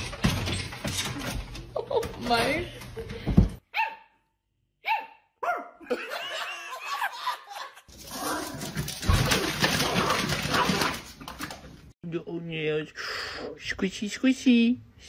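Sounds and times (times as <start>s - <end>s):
man laughing: 5.8s - 7.9s.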